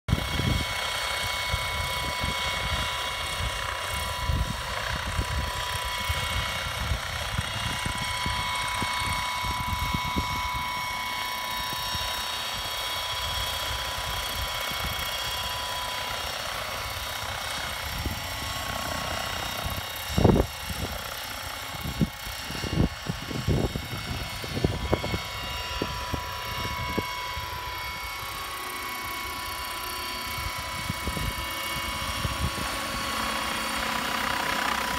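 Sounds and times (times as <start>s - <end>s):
electric rotor whine: 0.1s - 34.9s.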